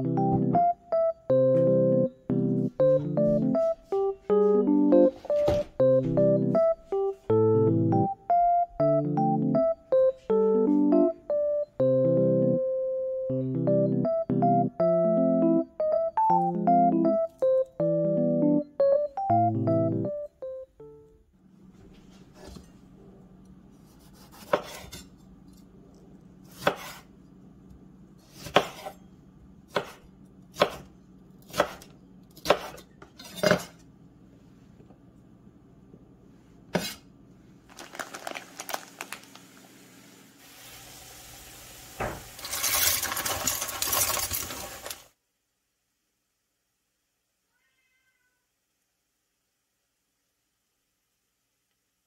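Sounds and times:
knife scraping board: 0:23.8 - 0:25.1, 0:26.5 - 0:27.1, 0:28.2 - 0:29.0, 0:31.5 - 0:33.8, 0:36.7 - 0:37.0
knife chopping on wooden board: 0:24.0 - 0:25.0, 0:26.5 - 0:27.1, 0:28.3 - 0:29.0, 0:29.7 - 0:33.8, 0:36.7 - 0:37.0
dry pasta pouring into pot: 0:37.7 - 0:39.6, 0:40.4 - 0:45.1.

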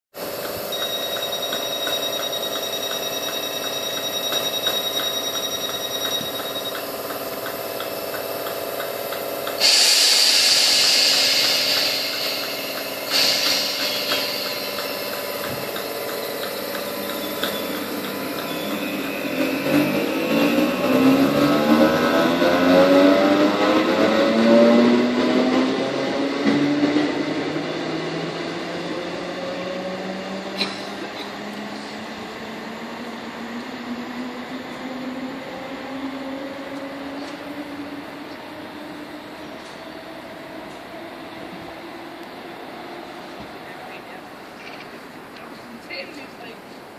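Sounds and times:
train equipment hum: 0:00.2 - 0:22.6, 0:25.2 - 0:46.9
traction motors whining: 0:00.2 - 0:24.2
loud air hiss: 0:09.4 - 0:15.8.

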